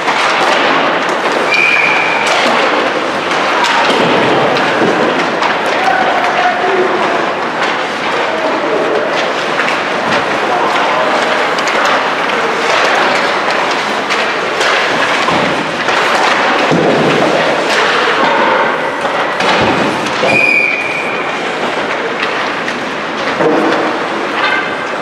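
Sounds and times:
pucks and sticks hitting boards: 0.0 - 25.0
skates scraping ice: 0.0 - 25.0
whistle blowing: 1.5 - 2.2, 20.3 - 21.2.

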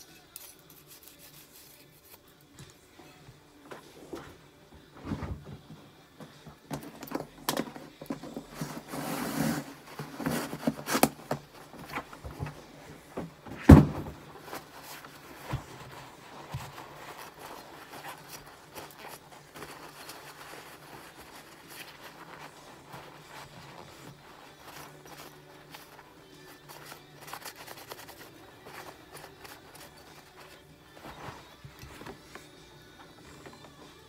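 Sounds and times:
towel rustling: 6.5 - 34.0
towel rubbing: 8.0 - 34.0
heavy thump: 13.5 - 14.2.

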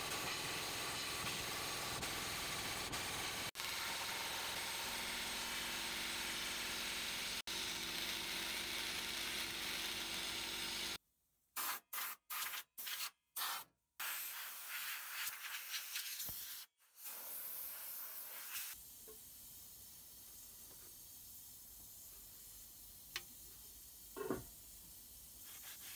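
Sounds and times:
sandblasting gun hissing: 16.0 - 24.1.

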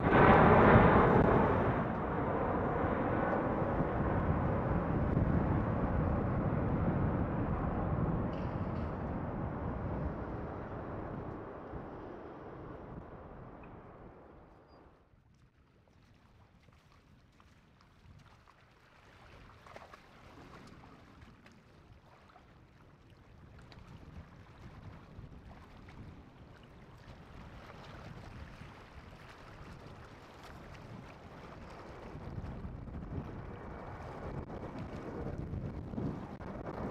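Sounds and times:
low rumble: 0.0 - 14.9, 31.3 - 36.9
wind on microphone: 0.0 - 14.9, 23.3 - 36.9.

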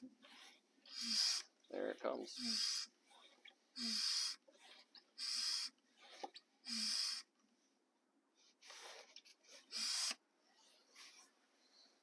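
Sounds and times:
hand pump hissing air: 0.9 - 1.5, 3.8 - 4.4, 5.2 - 5.7, 9.7 - 10.2.

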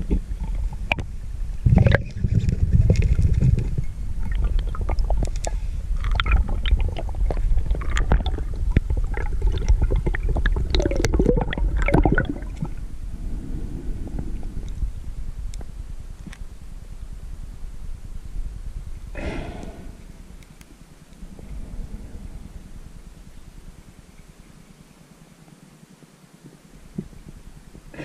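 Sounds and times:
bubbling: 0.0 - 15.4
low underwater rumble: 0.0 - 25.0.

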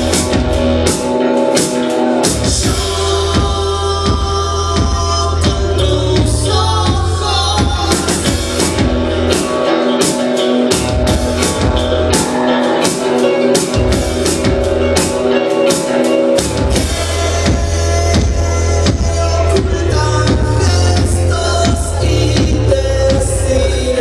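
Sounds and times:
deep bass: 0.0 - 1.0, 2.3 - 9.5, 10.8 - 12.2, 13.8 - 15.2, 16.4 - 24.0
drum kit beating a rhythm: 0.0 - 24.0
guitar: 0.0 - 24.0.

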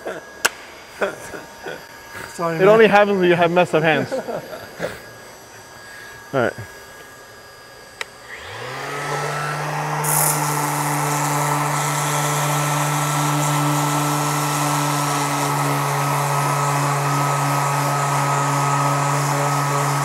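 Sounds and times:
cordless sander sanding plastic: 8.1 - 20.0.

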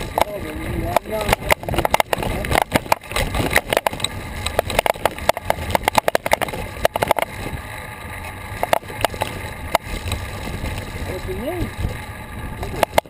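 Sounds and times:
wind and road rumble: 0.0 - 13.0
camera mount rattling: 0.9 - 7.4, 8.6 - 10.9.

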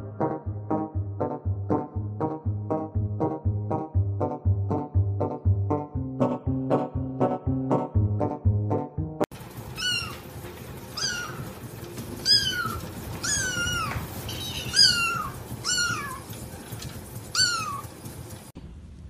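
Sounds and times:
cat meowing: 9.8 - 10.3, 11.0 - 11.6, 12.2 - 16.4, 17.3 - 17.9.

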